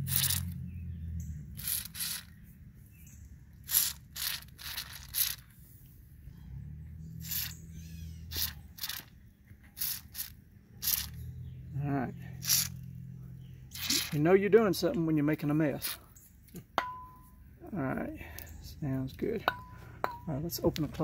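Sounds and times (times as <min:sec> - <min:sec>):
aerosol can spraying: 0:09.8 - 0:11.1.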